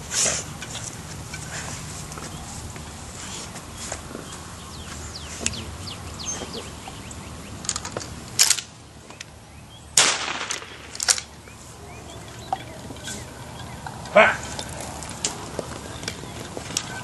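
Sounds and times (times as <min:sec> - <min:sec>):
gunshots: 0:10.0 - 0:11.2.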